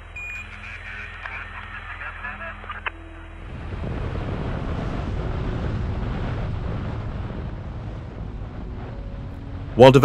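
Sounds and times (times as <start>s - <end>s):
boat engine rumble: 0.0s - 10.0s
wind on microphone: 3.4s - 10.0s
water washing past hull: 3.5s - 10.0s.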